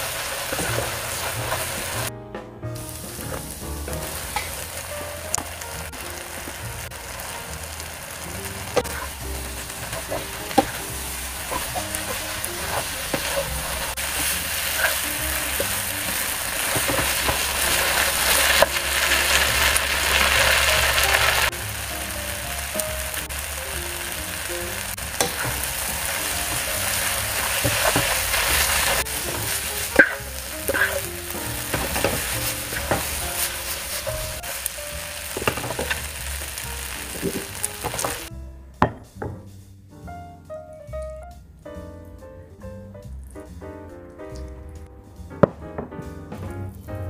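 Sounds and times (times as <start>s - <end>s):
food sizzling in a wok: 0.0s - 2.1s, 2.8s - 38.4s
wooden spatula scraping a pan: 0.0s - 2.1s, 8.1s - 21.5s, 24.9s - 38.3s.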